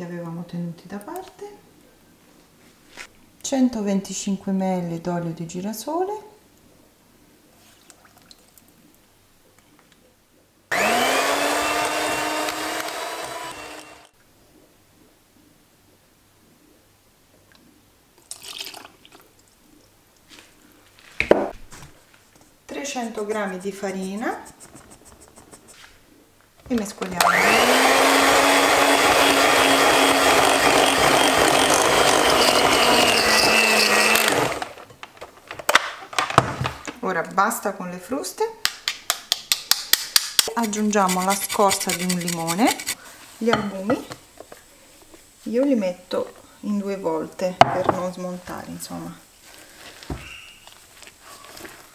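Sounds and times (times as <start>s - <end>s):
electric hand mixer whine: 10.7s - 14.1s, 27.2s - 34.9s
mixer beating in glass bowl: 10.7s - 14.1s, 27.2s - 34.8s, 40.6s - 43.0s.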